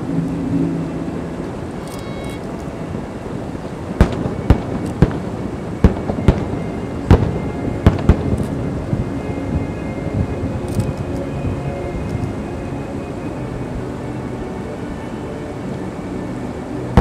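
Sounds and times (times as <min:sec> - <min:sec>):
low background noise: 0:00.0 - 0:17.0
fireworks sharp bangs: 0:04.0 - 0:08.5.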